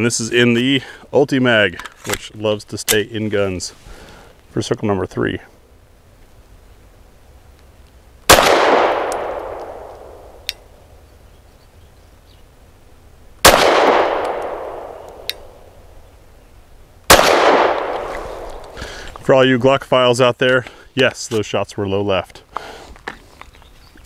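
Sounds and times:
pistol shots echoing: 8.3 - 10.5, 13.4 - 15.6, 17.1 - 18.7.

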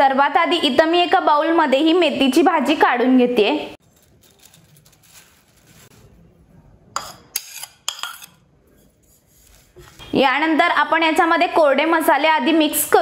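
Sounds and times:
leaves rustling into bowl: 3.8 - 6.2.

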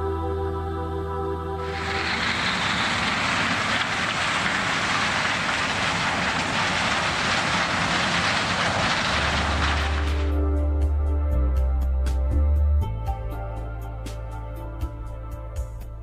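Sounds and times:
combine harvester cutting stalks: 1.6 - 10.4.

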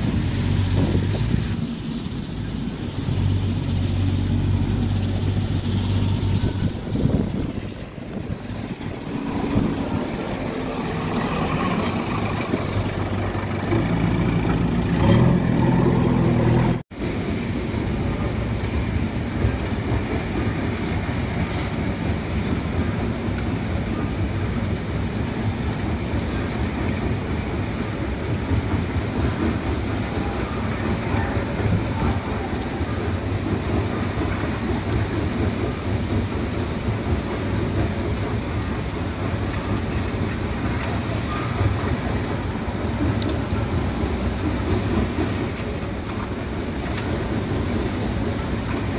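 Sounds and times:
diesel engine revving: 2.9 - 16.9.

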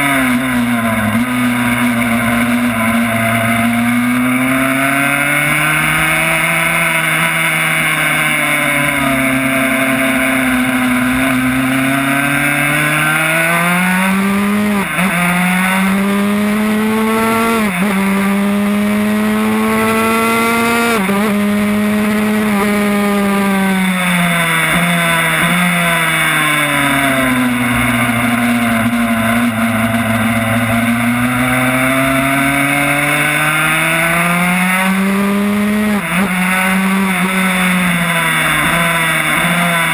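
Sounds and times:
two-stroke motorcycle engine revving: 0.0 - 39.9.

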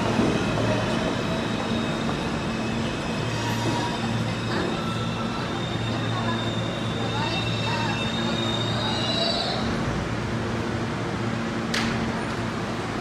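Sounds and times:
train wheel squeal: 0.0 - 9.9.

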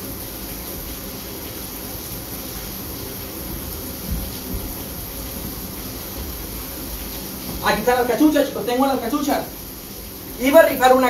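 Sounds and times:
steady hissing noise: 0.0 - 11.0
dull low thump: 4.0 - 6.6.

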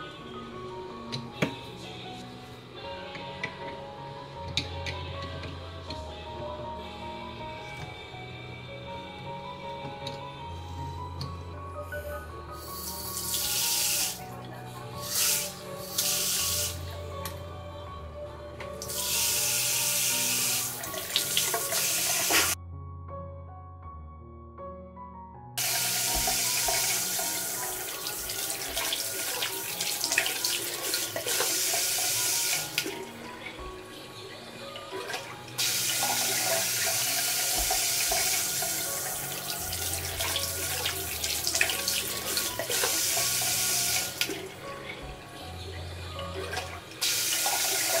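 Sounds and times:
background music: 0.0 - 48.0
water running into sink: 12.7 - 14.2, 15.0 - 16.8, 18.8 - 22.6, 25.6 - 33.2, 34.9 - 45.0, 46.4 - 48.0.

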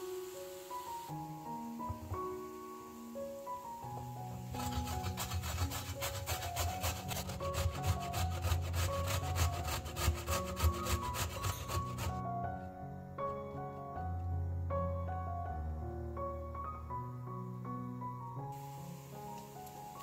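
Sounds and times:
soft background music: 0.0 - 20.0
carrot grating on metal grater: 4.5 - 12.2.

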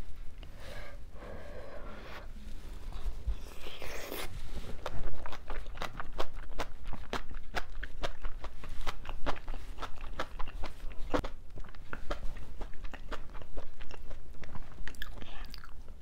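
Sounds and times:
crunchy chewing: 3.3 - 15.8.

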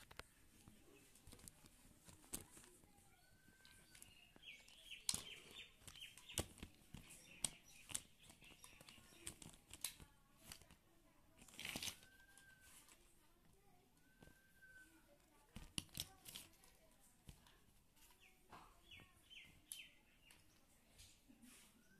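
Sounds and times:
rustling: 0.0 - 21.9
plastic toys clicking and knocking: 3.4 - 13.0, 15.4 - 20.5.

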